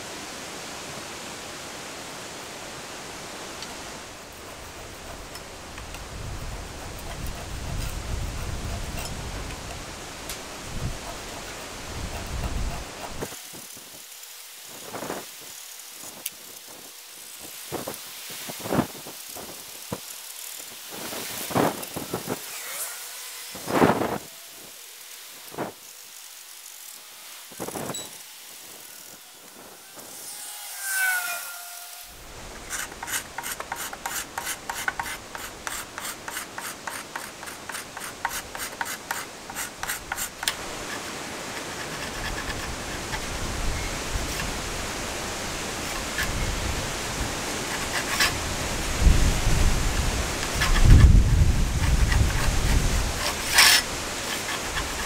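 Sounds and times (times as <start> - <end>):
steady rushing noise: 0.0 - 55.0
metal blade scraping wood: 21.4 - 24.7, 27.3 - 43.4, 50.4 - 55.0.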